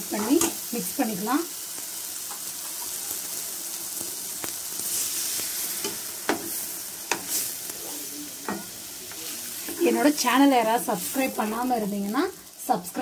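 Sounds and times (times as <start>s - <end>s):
masala sizzling in a pan: 0.0s - 13.0s
spatula scraping and tapping pan: 5.8s - 7.4s.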